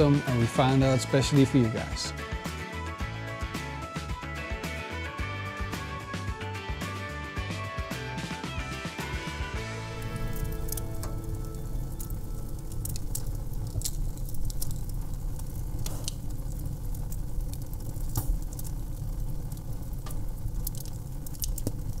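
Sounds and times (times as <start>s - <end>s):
wood fire crackling and popping: 0.0s - 2.1s, 9.5s - 22.0s
low rumble of flames: 9.4s - 22.0s.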